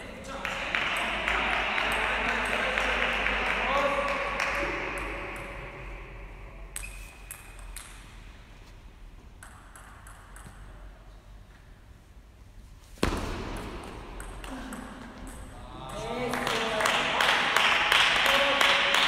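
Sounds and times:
table tennis ball bouncing: 0.6 - 6.0, 6.7 - 8.1, 9.4 - 10.9, 13.0 - 16.1
racket hitting ball: 13.0 - 15.4.

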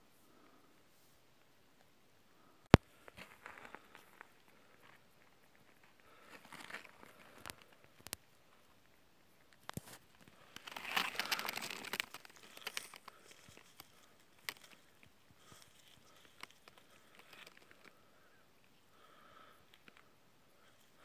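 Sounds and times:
small snaps and ticks: 7.0 - 8.2, 9.4 - 18.0
dry leaves rustling and crackling: 10.5 - 14.8.

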